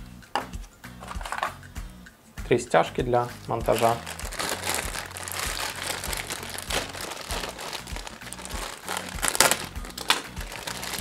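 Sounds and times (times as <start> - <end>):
plastic bag crinkling: 3.6 - 11.0.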